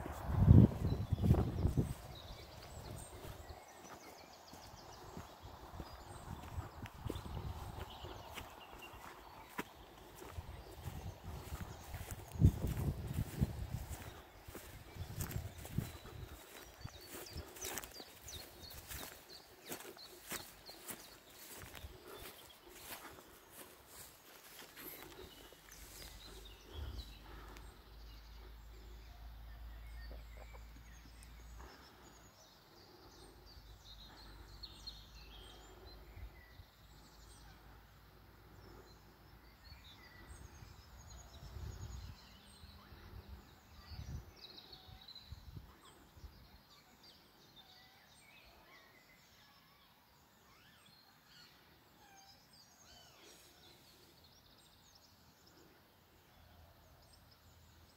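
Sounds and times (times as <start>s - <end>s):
wind rumble on microphone: 0.0s - 3.6s, 4.7s - 8.6s, 10.2s - 17.5s, 40.3s - 44.4s
woodland birds chirping: 0.0s - 57.9s.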